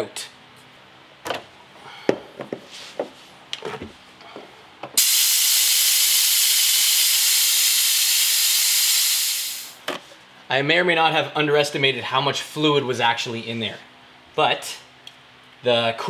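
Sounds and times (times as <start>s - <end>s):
compressed air hissing: 5.0s - 9.8s.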